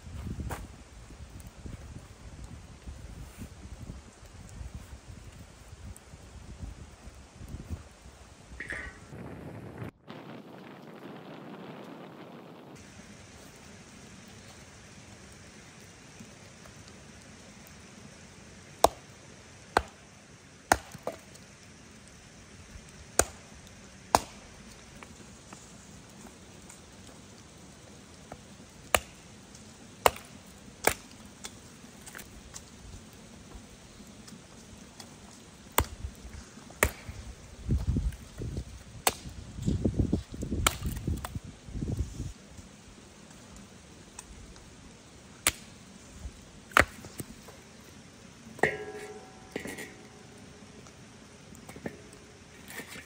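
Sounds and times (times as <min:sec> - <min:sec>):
axe chopping firewood: 0:18.8 - 0:19.1, 0:19.7 - 0:20.0, 0:20.7 - 0:21.3, 0:23.1 - 0:23.4, 0:24.1 - 0:24.5, 0:28.9 - 0:29.2, 0:30.0 - 0:31.2, 0:35.7 - 0:36.0, 0:36.7 - 0:37.2, 0:39.0 - 0:39.3, 0:40.6 - 0:41.2, 0:45.4 - 0:45.7, 0:46.7 - 0:47.3, 0:48.6 - 0:50.1
handling noise rumble: 0:48.6 - 0:53.0.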